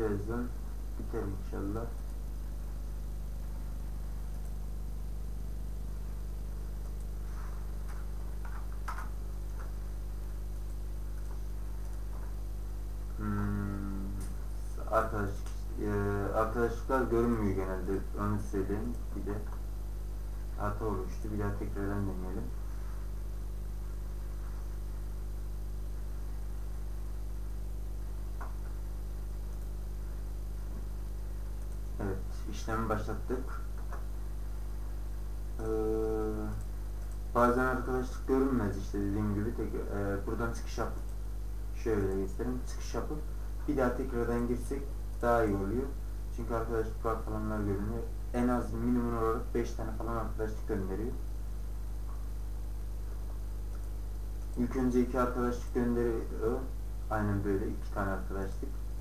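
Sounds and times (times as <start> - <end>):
low electrical hum: 0.0 - 59.0
faint clicks and ticks: 1.0 - 2.4, 4.2 - 4.7, 5.3 - 15.8, 18.2 - 19.8, 26.9 - 34.2, 36.3 - 45.5, 51.9 - 55.0.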